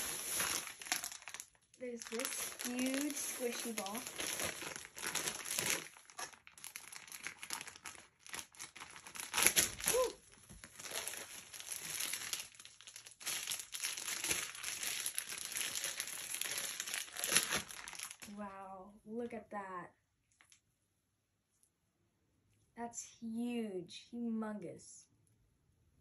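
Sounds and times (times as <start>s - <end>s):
plastic packaging crinkling: 0.0s - 18.4s.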